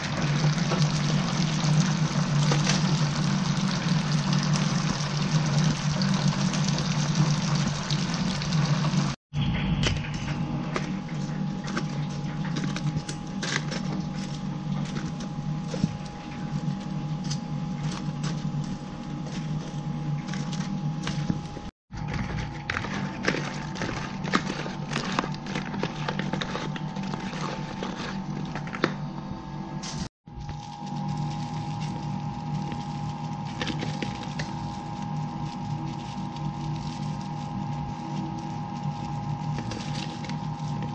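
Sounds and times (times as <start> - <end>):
oil sizzling and crackling: 0.0 - 9.2
low steady hum: 0.0 - 40.9.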